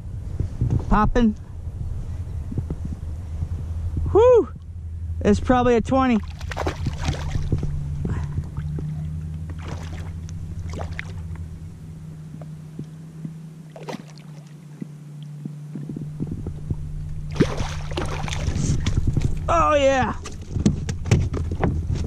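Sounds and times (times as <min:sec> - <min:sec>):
steady low hum: 0:00.0 - 0:22.0
fish splashing at surface: 0:06.2 - 0:07.6, 0:09.5 - 0:11.2, 0:13.7 - 0:14.6, 0:17.3 - 0:19.4.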